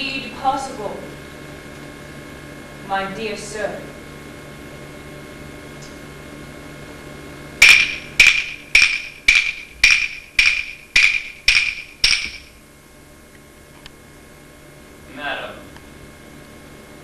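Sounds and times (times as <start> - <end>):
clock striking: 7.6 - 12.6.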